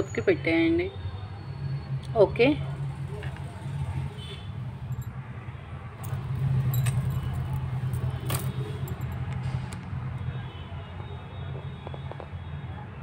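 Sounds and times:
light metal clicks and clinks: 4.9 - 5.1, 6.0 - 9.4.

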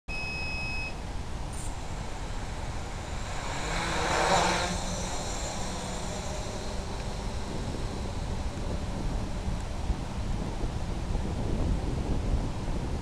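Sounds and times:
short high beep: 0.1 - 1.0
quadcopter motors and propellers: 0.1 - 13.0.

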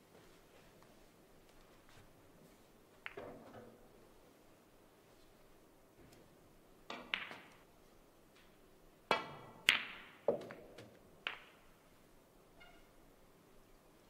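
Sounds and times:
snooker balls clicking: 6.8 - 7.7, 9.1 - 11.8.

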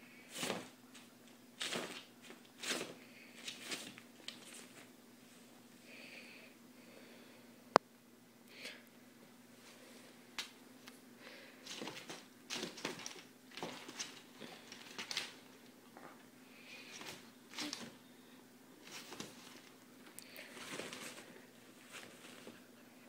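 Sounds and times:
kitten rustling in mesh hamper: 18.8 - 19.8, 20.4 - 22.6.

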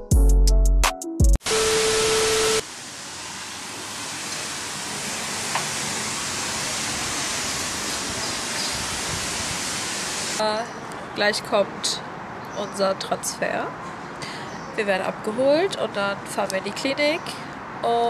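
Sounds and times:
tv static hiss: 1.5 - 2.6, 3.9 - 10.4
outdoor balcony ambience hiss: 1.5 - 18.0.

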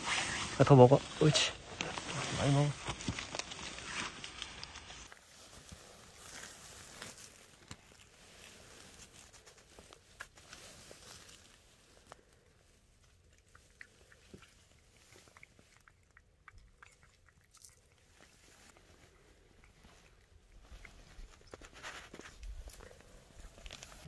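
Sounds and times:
cat eating: 1.7 - 24.0
wet mouth clicks: 13.3 - 18.1.

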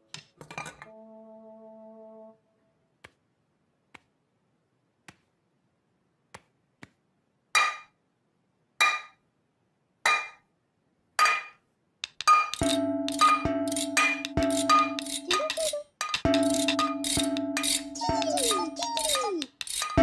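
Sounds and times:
metal pans clanging together: 0.1 - 0.9, 12.3 - 18.6, 19.7 - 20.0
music: 0.6 - 2.6, 12.6 - 20.0.

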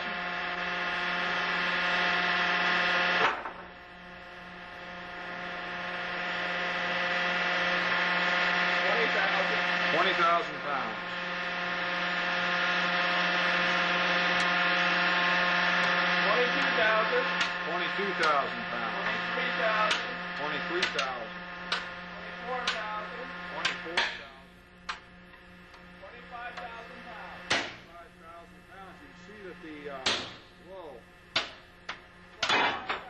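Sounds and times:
test machine humming: 0.0 - 33.0.

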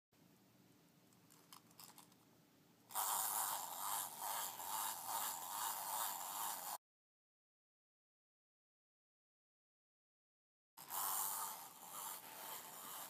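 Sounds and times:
clockwork toy buzzing whirr: 2.9 - 6.8, 10.8 - 13.0.

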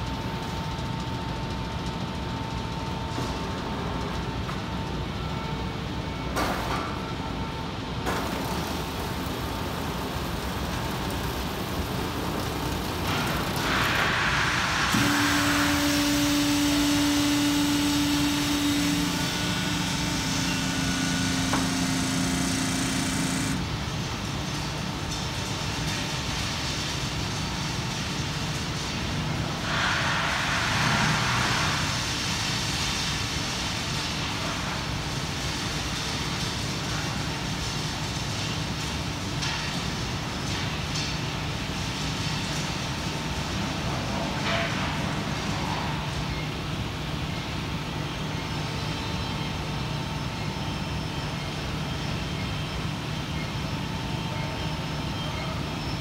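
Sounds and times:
machine drone: 0.0 - 33.2.

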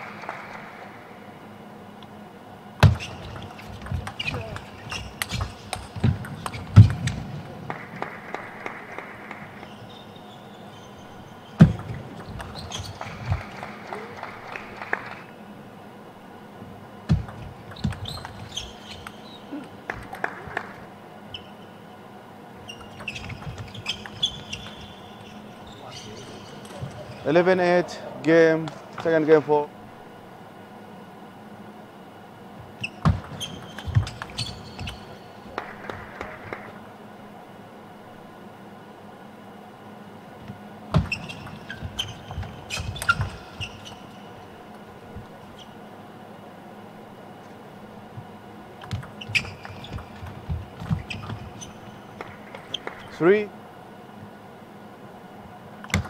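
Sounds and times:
shoes squeaking on floor: 2.8 - 7.2, 9.6 - 15.3, 17.1 - 20.0, 21.3 - 21.8, 22.6 - 27.5, 32.7 - 36.7, 40.9 - 44.5, 48.2 - 53.2.

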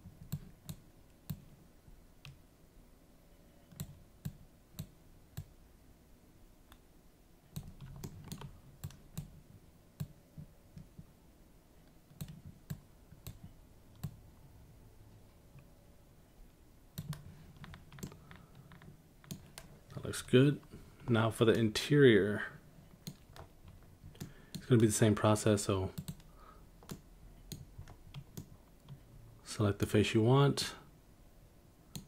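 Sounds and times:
faint room noise: 0.0 - 32.0
computer mouse and keyboard clicks: 0.2 - 1.6, 3.7 - 5.5, 7.5 - 9.4, 12.1 - 14.2, 17.0 - 20.0, 22.9 - 24.9, 26.0 - 29.0.

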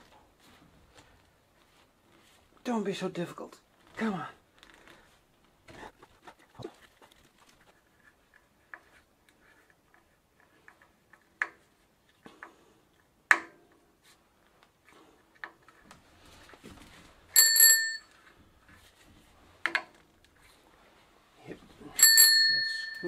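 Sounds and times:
bicycle bell ringing: 17.4 - 18.1, 22.0 - 23.0.

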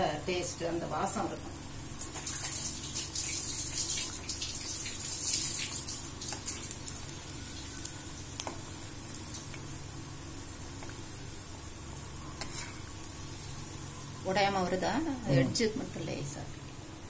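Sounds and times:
food sizzling in hot oil: 0.0 - 17.0
oil crackling: 2.0 - 10.0.

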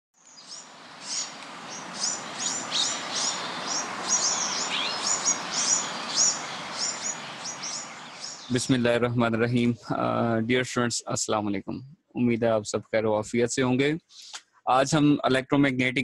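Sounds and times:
small birds chirping: 0.2 - 8.9
steady hiss: 0.3 - 16.0.

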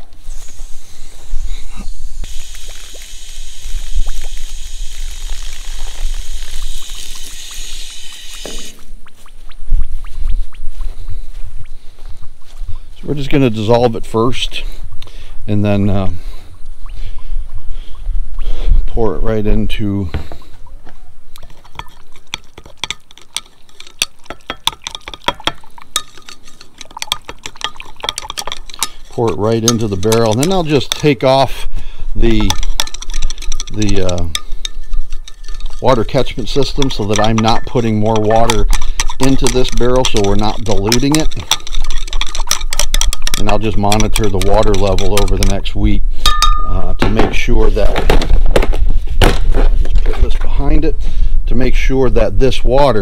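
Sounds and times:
water spraying from hose nozzle: 2.2 - 8.8
metal clinking against glass: 21.4 - 31.3, 32.3 - 45.2, 46.2 - 47.1
metal stirring water in glass: 21.4 - 31.6, 32.2 - 47.0.

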